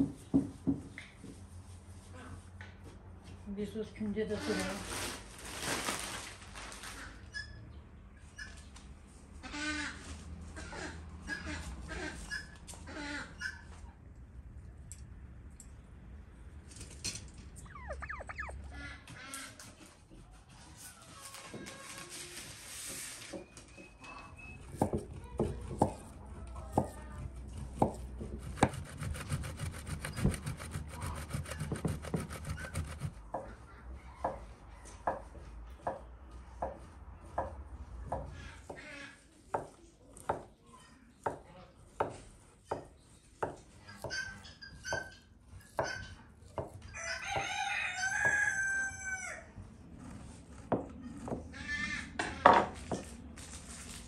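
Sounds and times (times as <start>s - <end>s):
rooster crowing: 46.9s - 49.6s.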